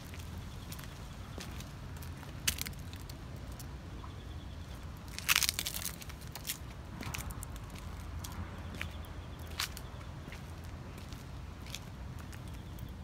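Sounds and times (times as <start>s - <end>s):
dry leaves crunching underfoot: 5.1s - 8.9s.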